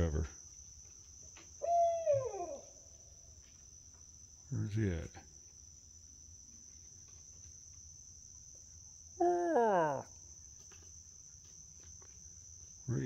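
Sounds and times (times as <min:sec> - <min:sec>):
crickets chirring: 0:00.0 - 0:13.0
loud drawn-out hoot: 0:01.6 - 0:02.8.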